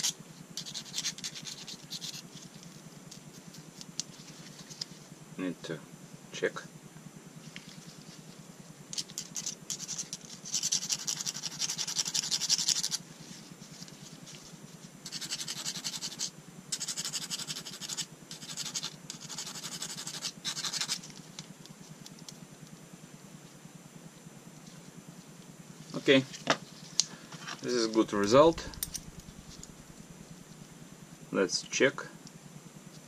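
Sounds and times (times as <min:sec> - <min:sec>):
sanding stick scratching metal: 0:00.0 - 0:02.3, 0:09.2 - 0:13.0, 0:15.1 - 0:21.0.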